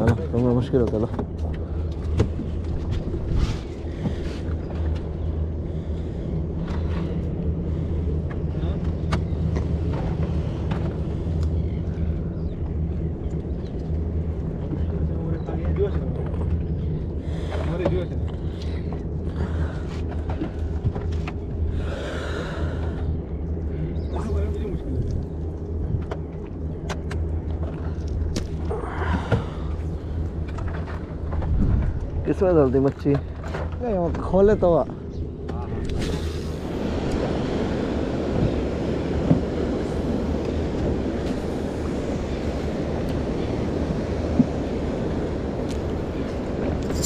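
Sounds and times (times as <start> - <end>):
boat engine idling: 0.0 - 47.0
wind on microphone: 30.5 - 32.3.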